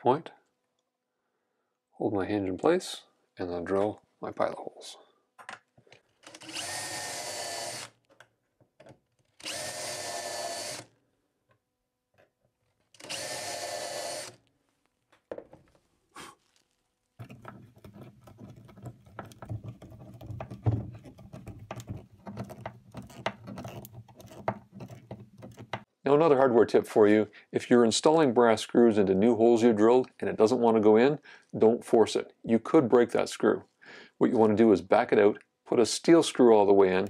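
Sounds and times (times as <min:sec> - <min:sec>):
cordless drill boring: 0:06.2 - 0:08.0, 0:09.4 - 0:10.9, 0:13.0 - 0:14.4
screwdriver turning screw: 0:06.2 - 0:08.2, 0:09.1 - 0:10.9, 0:12.9 - 0:14.4, 0:17.2 - 0:25.8.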